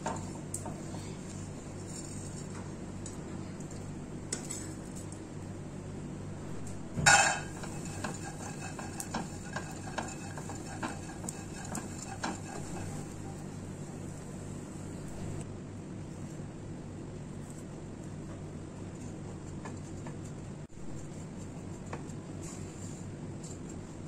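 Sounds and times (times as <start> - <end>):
spatula scraping a pot: 7.1 - 13.6.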